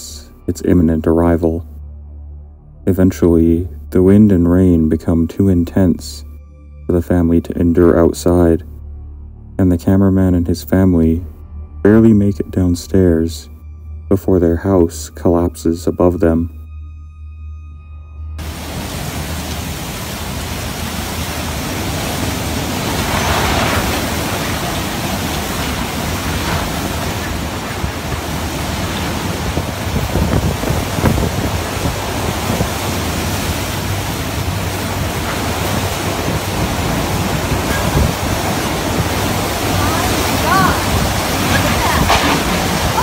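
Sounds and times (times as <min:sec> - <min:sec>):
driving rain: 0:18.4 - 0:43.0
strong wind: 0:18.4 - 0:43.0.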